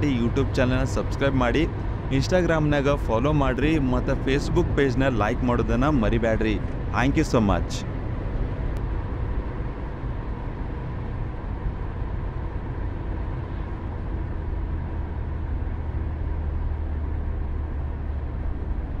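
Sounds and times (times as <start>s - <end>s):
road and engine rumble in car: 0.0s - 19.0s.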